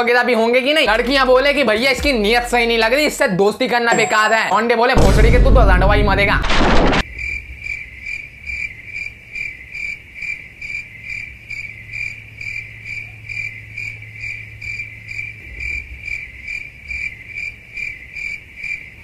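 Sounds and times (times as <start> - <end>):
cricket chirping: 7.0 - 19.0.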